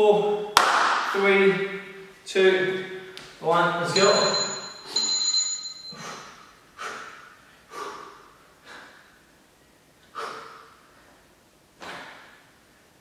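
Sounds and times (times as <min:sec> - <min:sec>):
man exhaling forcefully: 0:06.0 - 0:09.2, 0:10.1 - 0:10.9.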